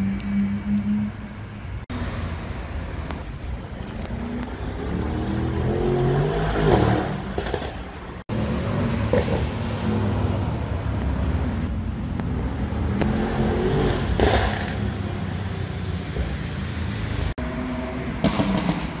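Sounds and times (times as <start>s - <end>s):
passing road traffic: 0.0s - 19.0s.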